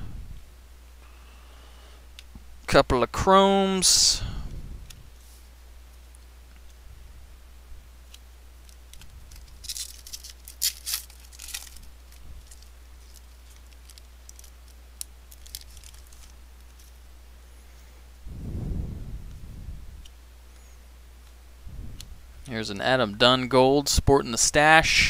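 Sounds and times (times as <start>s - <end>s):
card pack wrapper crinkling: 8.6s - 17.0s.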